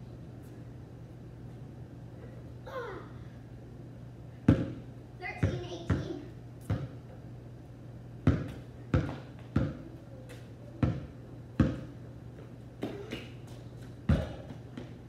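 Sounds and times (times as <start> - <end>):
basketball bouncing on concrete: 4.5 - 4.8, 5.4 - 7.0, 8.2 - 13.4, 14.1 - 15.0.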